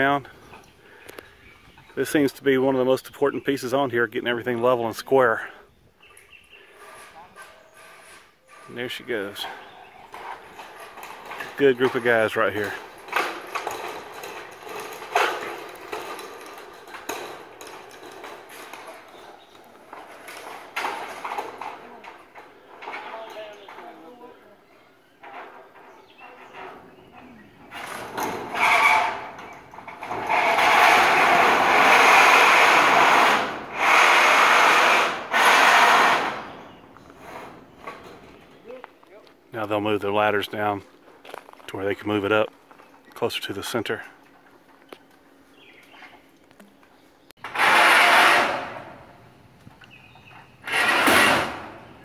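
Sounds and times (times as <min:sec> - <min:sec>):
metal scraping on metal: 0:06.6 - 0:21.8, 0:25.2 - 0:38.4, 0:47.4 - 0:49.1
sheet metal panel rattling: 0:08.6 - 0:22.1
loud metal clatter: 0:09.4 - 0:21.8, 0:27.7 - 0:38.3, 0:47.4 - 0:49.1, 0:50.6 - 0:51.9.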